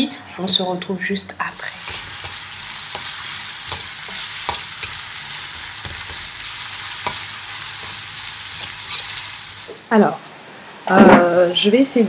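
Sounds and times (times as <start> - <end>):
fish sizzling in frying pan: 1.5 - 9.9
utensil clicking against pan: 1.8 - 5.0.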